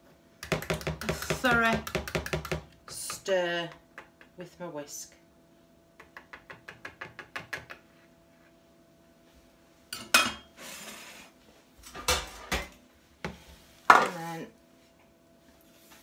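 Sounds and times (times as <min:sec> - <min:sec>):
metal pans and utensils clattering: 0:11.8 - 0:12.8.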